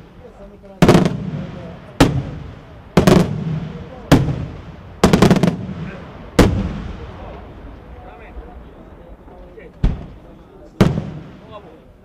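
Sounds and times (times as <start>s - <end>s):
firework shells bursting: 0.8s - 7.8s.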